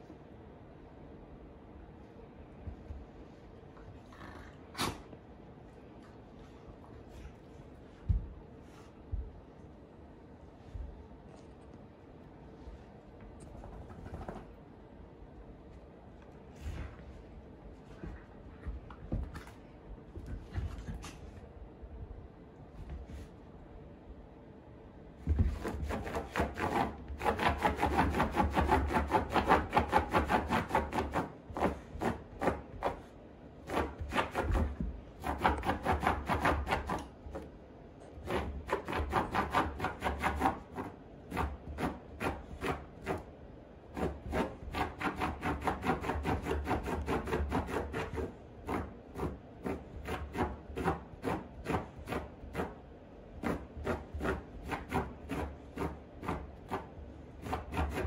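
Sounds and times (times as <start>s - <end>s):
dog scratching at rug: 6.4s - 9.3s, 25.2s - 58.0s.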